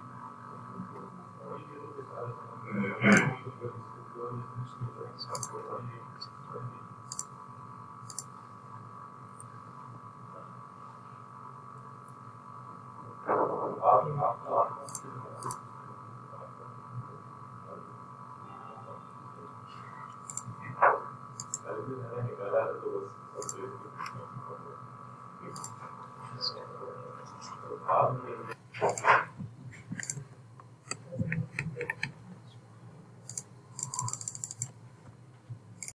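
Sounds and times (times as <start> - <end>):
steady electrical hum: 0.0 - 35.9
computer mouse clicks: 8.1 - 8.3, 14.9 - 15.6, 20.2 - 20.5, 21.4 - 21.6, 23.4 - 23.6, 25.6 - 25.8, 28.8 - 29.1, 30.0 - 30.2, 30.8 - 32.2, 33.3 - 34.7.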